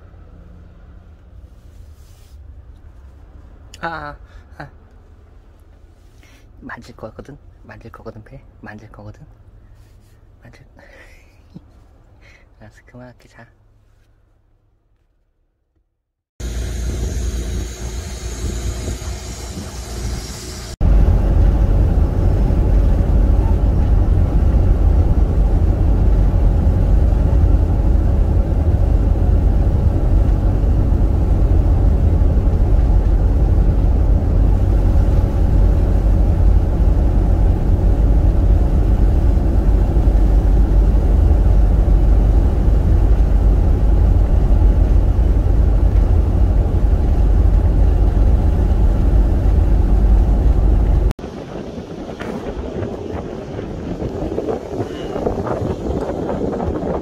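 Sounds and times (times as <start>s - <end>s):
van engine and tyre rumble: 0.0s - 15.3s, 16.4s - 57.0s.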